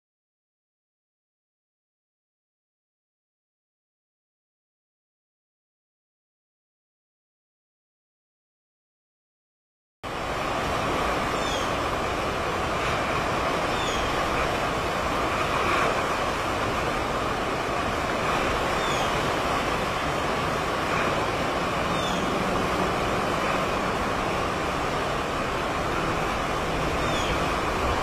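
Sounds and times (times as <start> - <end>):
choppy waves: 10.0 - 28.0.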